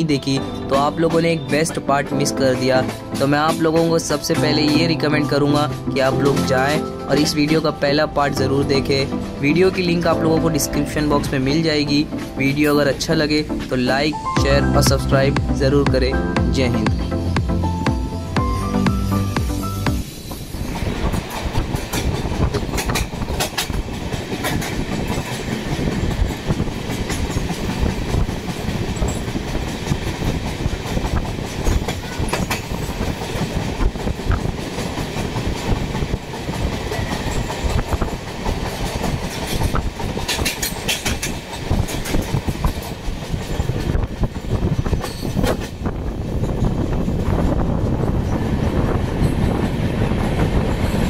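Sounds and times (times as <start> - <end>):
train rumbling on rails: 0.0 - 51.0
wheels clattering over rail joints: 20.7 - 51.0.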